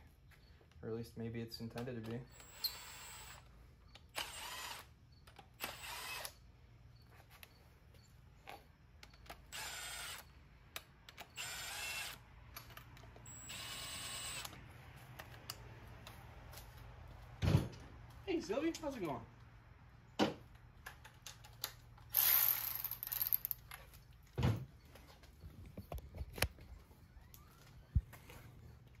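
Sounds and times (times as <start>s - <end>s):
power drill bursts: 2.3s - 3.4s, 4.1s - 6.4s, 9.4s - 10.3s, 11.2s - 12.2s, 13.2s - 14.5s, 22.1s - 23.5s.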